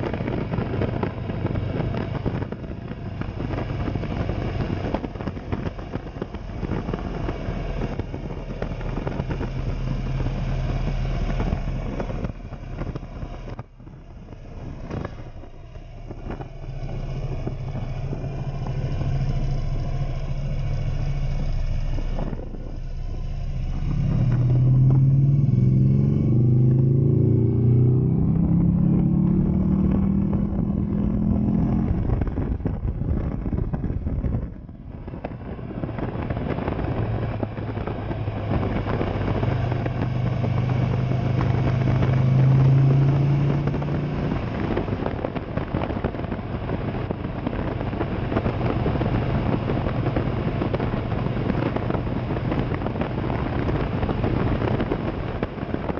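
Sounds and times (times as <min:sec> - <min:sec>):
motorcycle engine accelerating: 0:00.0 - 0:55.9
road and wind noise: 0:00.0 - 0:55.9.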